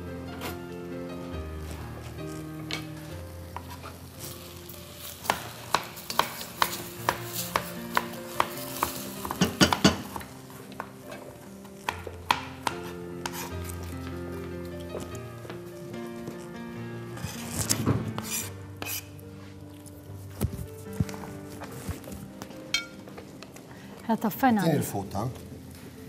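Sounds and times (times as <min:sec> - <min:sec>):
background music: 0:00.0 - 0:26.0
spoon knocking in metal pot: 0:09.3 - 0:10.2.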